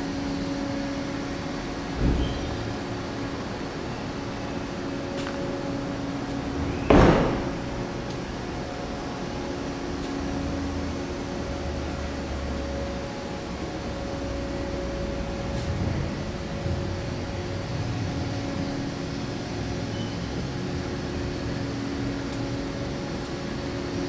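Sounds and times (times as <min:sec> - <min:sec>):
workshop machine hum: 0:00.0 - 0:24.0
loud thump: 0:06.8 - 0:07.8.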